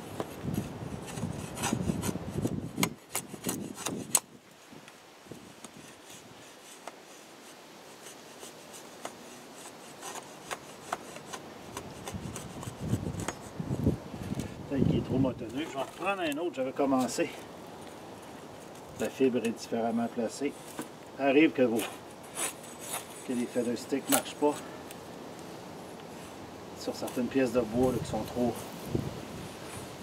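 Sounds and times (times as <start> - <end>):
machete scraping wood: 0.0 - 4.3, 5.4 - 13.6, 15.4 - 17.5, 18.5 - 21.0, 21.6 - 24.9.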